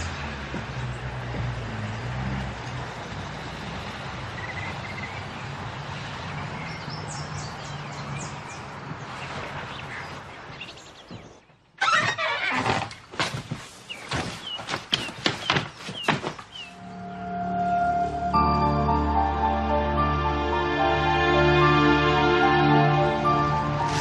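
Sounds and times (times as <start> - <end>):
birds chirping: 0.0 - 12.0, 13.8 - 19.0.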